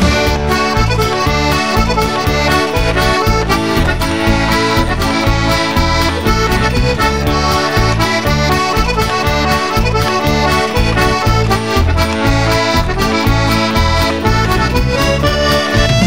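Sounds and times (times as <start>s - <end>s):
accordion playing a tune: 0.0s - 16.0s
pulsing bass beat: 0.0s - 16.0s.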